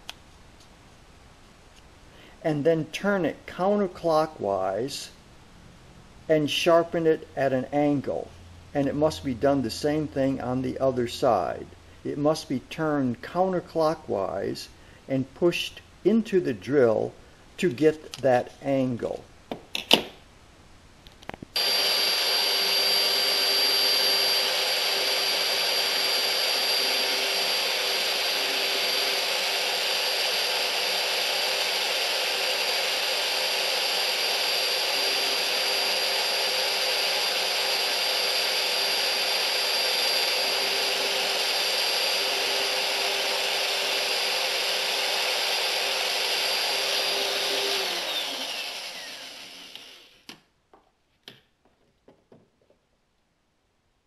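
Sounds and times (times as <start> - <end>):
drill bit grinding on wheel: 21.6 - 50.3
electric drill whining: 21.6 - 50.4.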